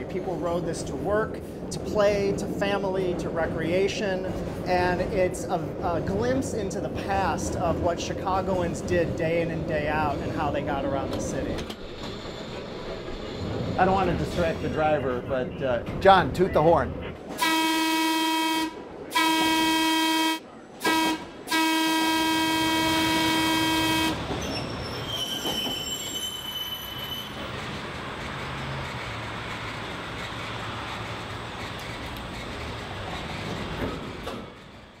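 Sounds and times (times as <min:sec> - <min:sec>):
train running noise: 0:00.0 - 0:35.0
train horn blasts: 0:17.3 - 0:24.2.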